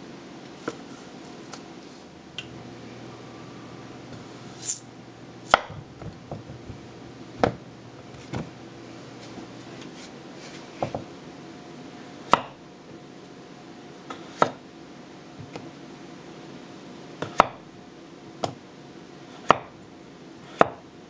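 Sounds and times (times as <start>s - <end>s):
knife knocking on wooden board: 5.6s - 6.8s.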